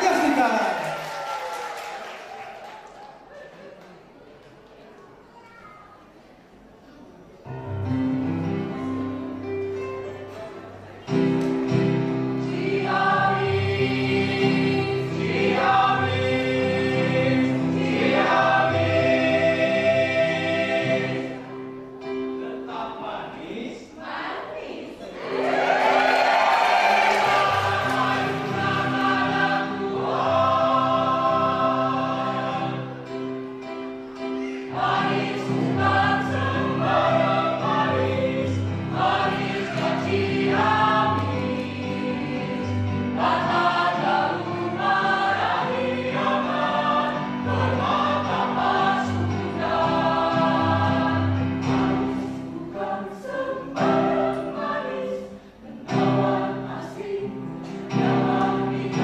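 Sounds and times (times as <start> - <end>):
choir singing in parts: 11.1 - 22.7, 24.0 - 59.0.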